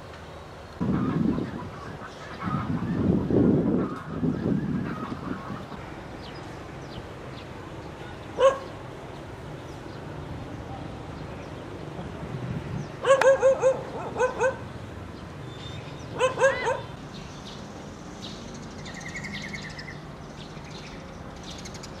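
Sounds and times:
dog barking: 8.4s - 8.7s, 13.0s - 14.6s, 16.2s - 16.9s.

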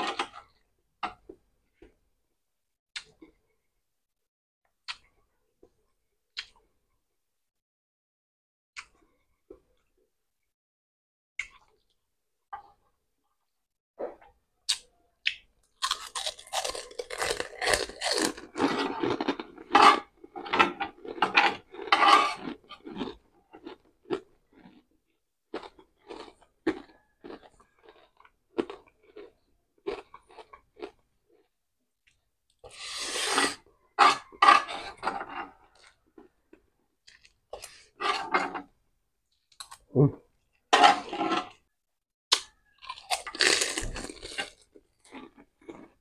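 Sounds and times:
crunching and chewing food: 14.1s - 46.0s.

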